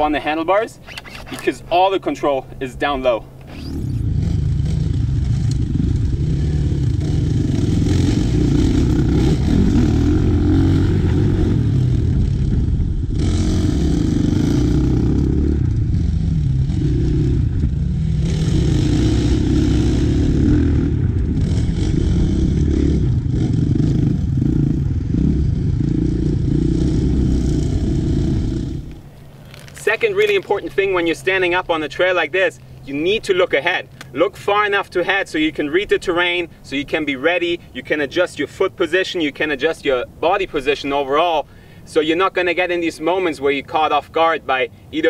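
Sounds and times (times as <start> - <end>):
dirt bike engines revving: 0.0 - 38.8.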